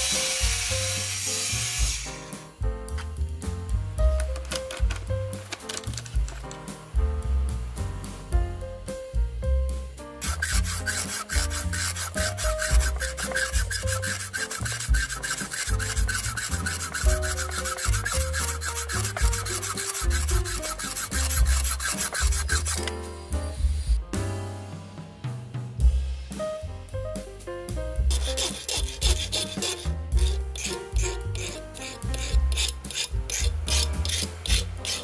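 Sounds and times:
hacksaw rasping on metal: 0:10.2 - 0:22.9, 0:28.1 - 0:35.0.

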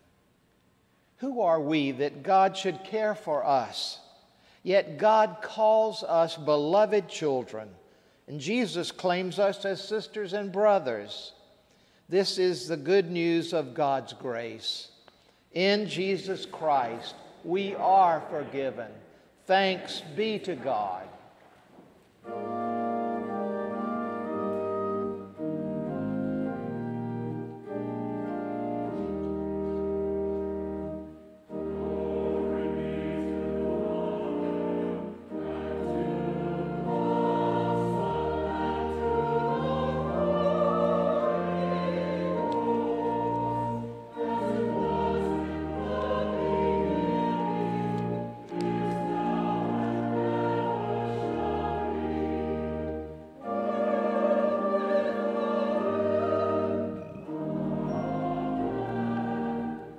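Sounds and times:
instrumental accompaniment: 0:21.7 - 0:59.9
choir singing: 0:22.2 - 0:59.9.

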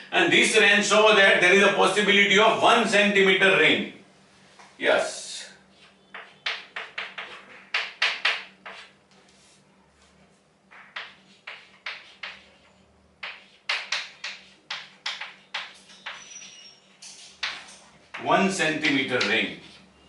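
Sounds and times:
chalk tapping and scratching on board: 0:05.7 - 0:09.5, 0:10.7 - 0:19.9.

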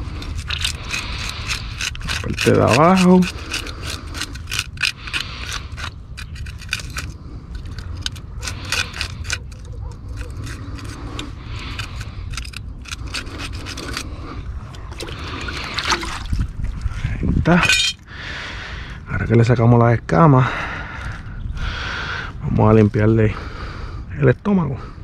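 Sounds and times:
knife scraping fish scales: 0:00.0 - 0:14.2.

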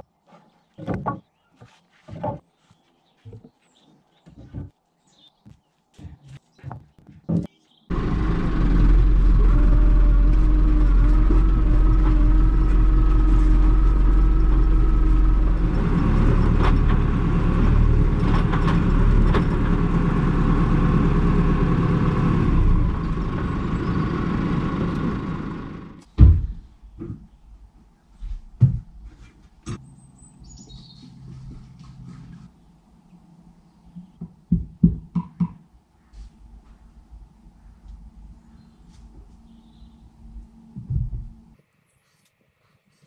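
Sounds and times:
tractor diesel engine running: 0:07.9 - 0:26.4.

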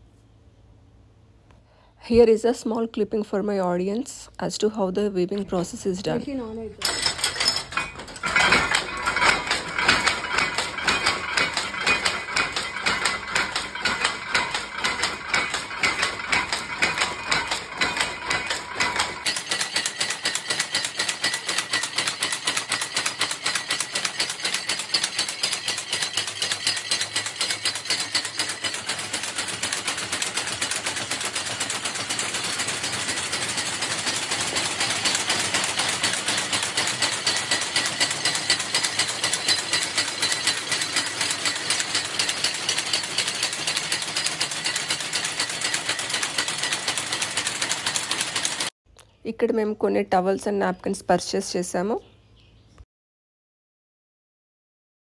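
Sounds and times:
powerlooms clattering: 0:05.0 - 0:48.7.

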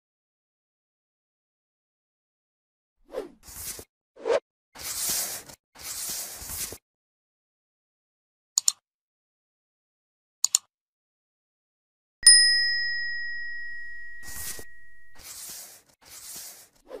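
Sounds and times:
short swishing noises: 0:03.1 - 0:06.8, 0:14.2 - 0:17.0
mouse clicks: 0:08.6 - 0:08.8, 0:10.4 - 0:10.7
bright bell ding: 0:12.2 - 0:15.2.

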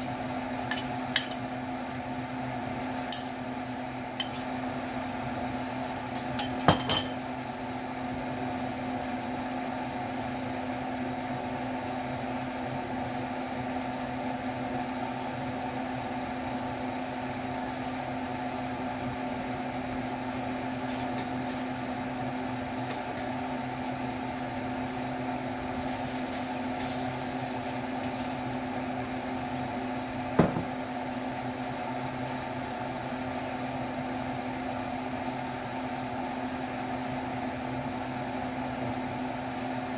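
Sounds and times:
kitchen fan motor hum: 0:00.0 - 0:39.9.

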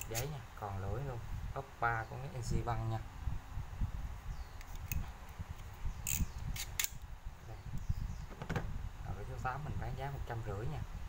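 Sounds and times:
utility knife slider clicks: 0:05.6 - 0:07.1.

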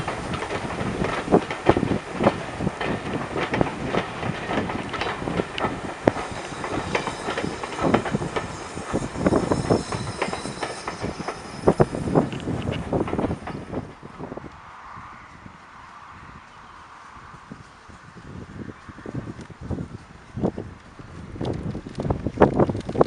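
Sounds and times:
train wheels clattering over rail joints: 0:00.0 - 0:14.0.

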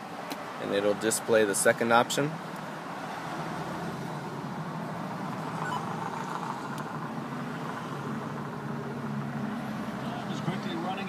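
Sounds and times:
car cabin background noise: 0:04.4 - 0:07.0.

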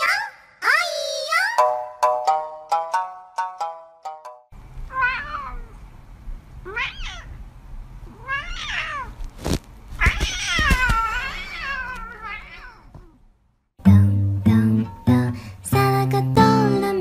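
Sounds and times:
cat meowing: 0:04.9 - 0:05.8, 0:06.6 - 0:07.4, 0:08.0 - 0:09.3, 0:10.0 - 0:13.2.

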